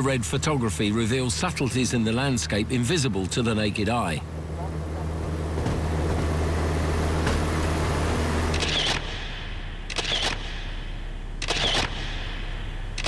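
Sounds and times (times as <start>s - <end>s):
light aircraft engine drone: 0.0s - 13.0s
film winding whir: 8.4s - 9.2s, 9.9s - 10.5s, 11.4s - 12.0s
camera shutter clicking: 8.5s - 9.1s, 9.9s - 10.5s, 11.4s - 12.0s.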